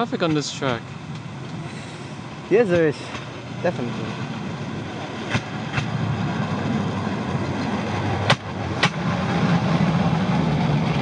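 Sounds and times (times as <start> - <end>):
rail vehicle engine and wheels rumbling: 0.0 - 11.0
wheels clacking over rail joints: 2.3 - 11.0.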